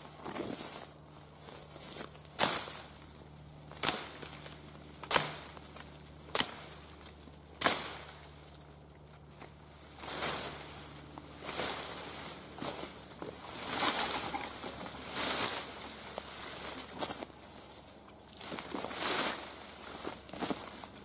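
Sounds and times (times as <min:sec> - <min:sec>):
rustle of stems: 0:00.0 - 0:21.0
brush hook chopping bramble: 0:03.7 - 0:06.8.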